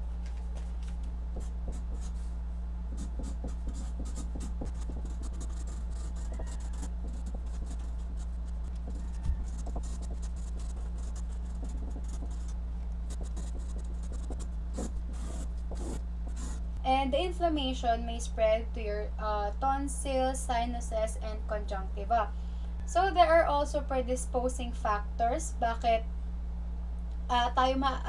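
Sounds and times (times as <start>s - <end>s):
steady low hum: 0.0s - 28.0s
marker scratching on paper: 1.4s - 2.3s, 2.9s - 12.5s, 13.1s - 16.6s.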